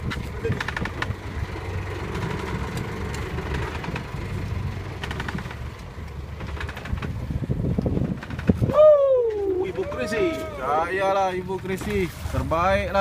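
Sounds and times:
boat engine rumbling: 0.0s - 13.0s.

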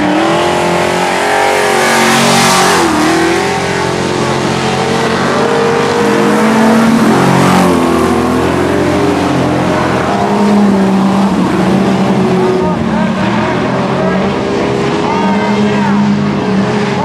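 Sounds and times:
racing car engines: 0.0s - 17.0s.

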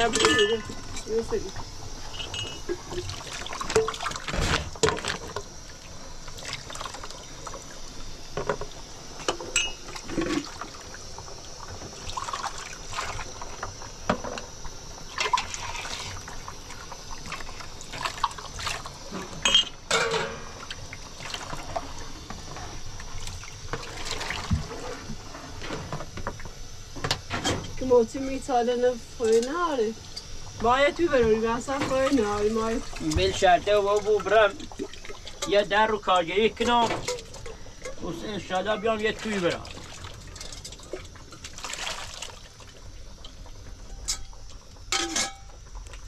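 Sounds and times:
knocks and clinks: 0.0s - 1.1s, 9.5s - 9.8s
water splashing and running: 2.7s - 7.8s, 9.9s - 13.6s, 15.1s - 19.5s, 20.6s - 22.2s, 23.1s - 25.1s, 30.7s - 43.0s.

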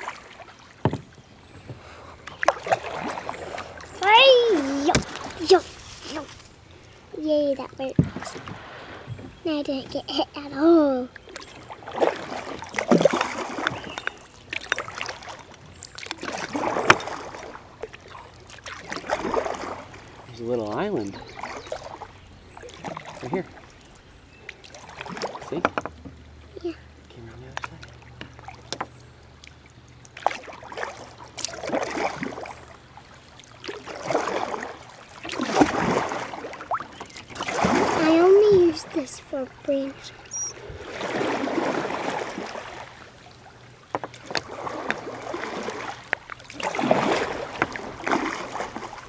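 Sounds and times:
kayak paddle strokes in water: 0.0s - 6.6s, 7.8s - 10.0s, 11.2s - 26.2s, 27.5s - 49.0s.

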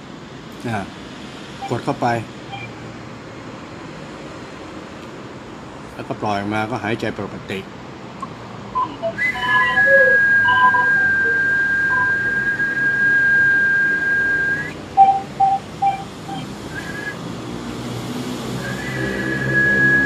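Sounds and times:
high whistle-like tone: 8.8s - 17.2s, 18.6s - 20.0s.

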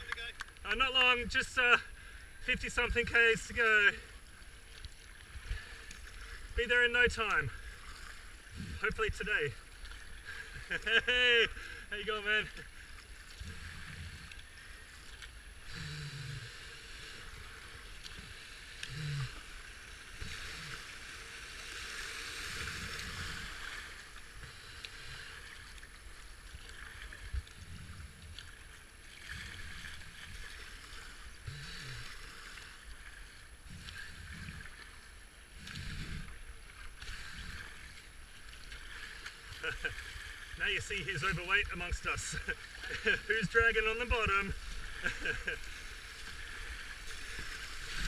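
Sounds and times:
paddle blade dipping: 0.0s - 48.0s
river water rushing: 38.7s - 48.0s.

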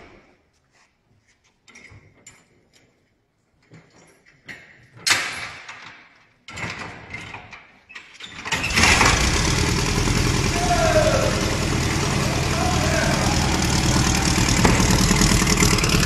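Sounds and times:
engine starting and running: 8.4s - 16.0s
rough continuous noise: 8.7s - 16.0s
loud bang: 10.6s - 16.0s
metal clanks and knocks: 14.4s - 16.0s.

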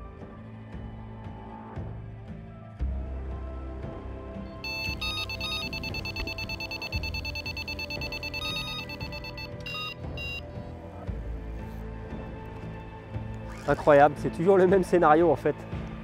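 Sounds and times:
short bleeps: 4.6s - 10.4s
bite alarm high-pitched tone: 4.7s - 10.4s.

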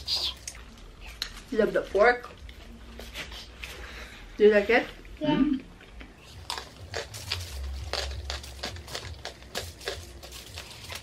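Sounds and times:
crispy food being chewed: 5.1s - 11.0s
foil trays crinkling: 6.4s - 11.0s.

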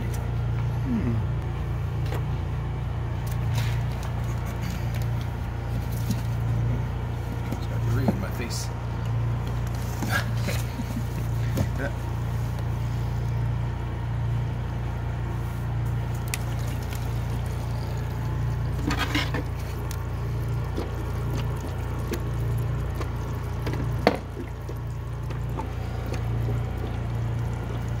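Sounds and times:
fluid pouring through plastic spout: 16.0s - 28.0s.

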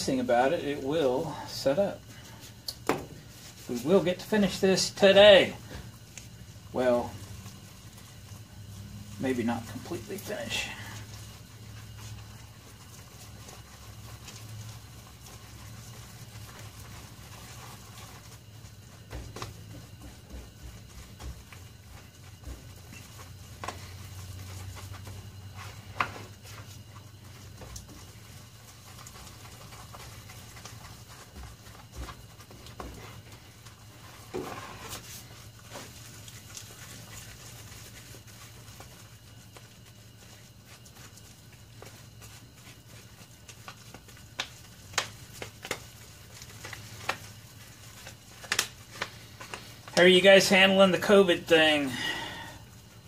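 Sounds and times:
steady low hum: 0.0s - 53.0s
stick scraping in plastic tub: 33.9s - 37.1s.

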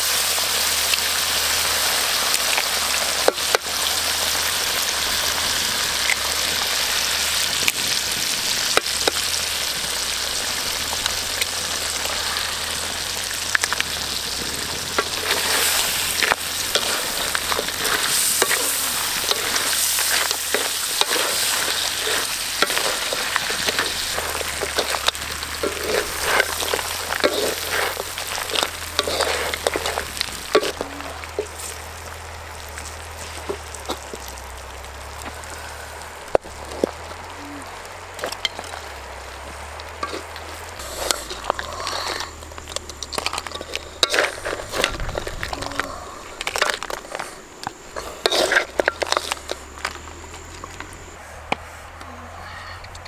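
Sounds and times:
food sizzling in a wok: 0.0s - 51.1s
spatula scraping and knocking pan: 14.7s - 31.7s, 48.0s - 50.0s.

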